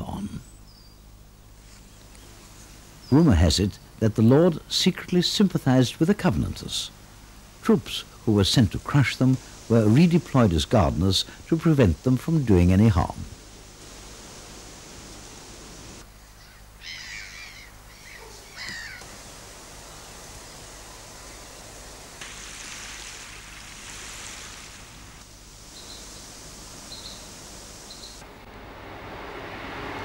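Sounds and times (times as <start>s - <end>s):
outdoor background noise: 0.0s - 30.0s
small bird chirps: 0.4s - 1.1s, 25.8s - 26.3s, 26.9s - 28.2s
crow cawing: 16.4s - 19.0s.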